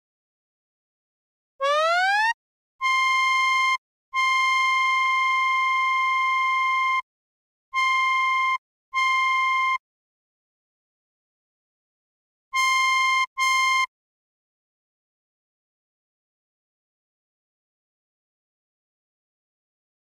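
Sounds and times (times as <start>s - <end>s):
bright synthesizer lead tone: 1.6s - 2.4s.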